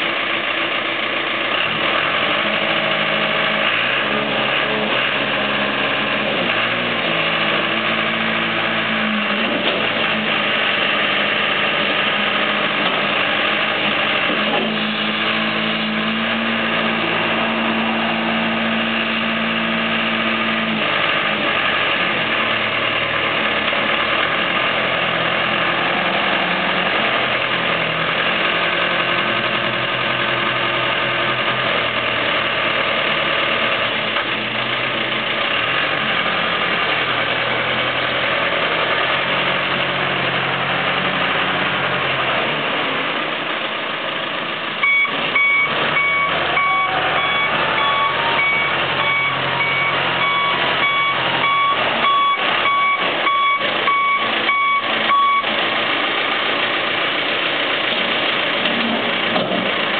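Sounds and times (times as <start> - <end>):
diesel engine under load: 0.0 - 59.9
reversing alarm beeping: 44.8 - 55.5.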